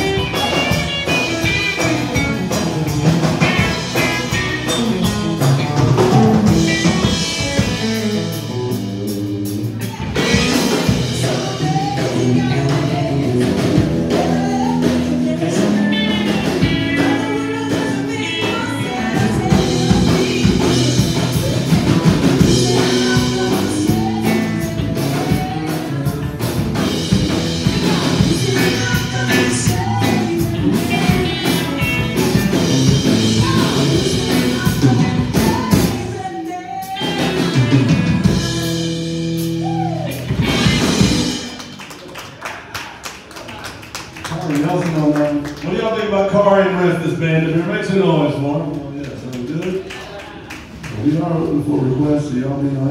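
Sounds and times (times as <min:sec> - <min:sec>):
country rock band playing live: 0:00.0 - 0:52.9
woman singing: 0:00.2 - 0:02.5, 0:09.9 - 0:38.5.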